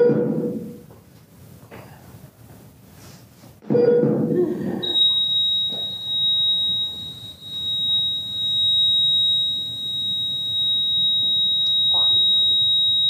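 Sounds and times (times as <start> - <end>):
high-pitched electronic tone: 4.8 - 13.0.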